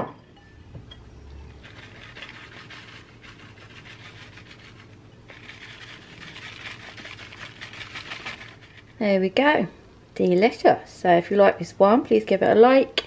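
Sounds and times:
grated cheese rustling: 0:01.5 - 0:09.0.

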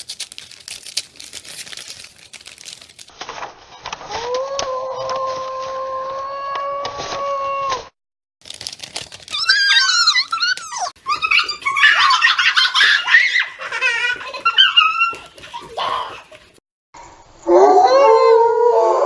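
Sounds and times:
envelope tearing: 0:00.0 - 0:03.1, 0:08.4 - 0:10.9
paper rustling: 0:00.0 - 0:06.2, 0:08.4 - 0:16.6.

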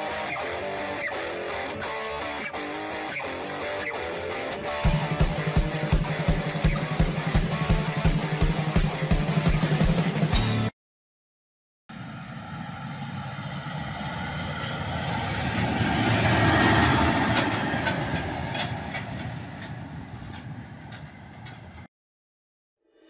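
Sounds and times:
tractor engine and tyres passing: 0:11.9 - 0:21.9
trailer knocking and clattering: 0:15.4 - 0:21.9.

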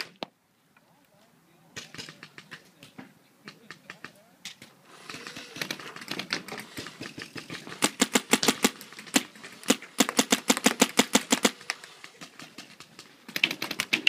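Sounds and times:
paintball marker firing: 0:03.5 - 0:14.0.

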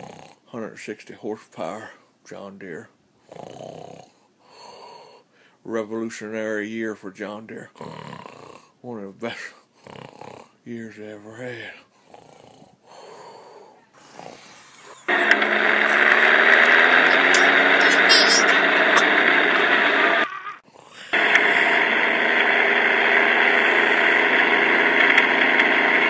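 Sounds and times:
recorded tractor engine running: 0:15.1 - 0:20.5, 0:21.2 - 0:26.0.

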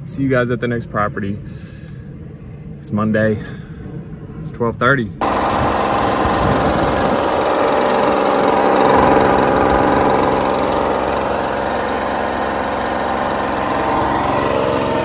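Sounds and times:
lawn mower engine running: 0:05.2 - 0:15.0.

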